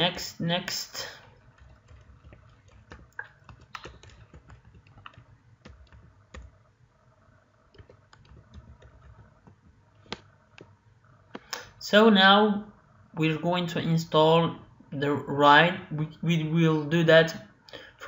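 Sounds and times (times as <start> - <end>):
low steady hum: 0.0 - 18.0
computer mouse clicks: 1.5 - 6.5.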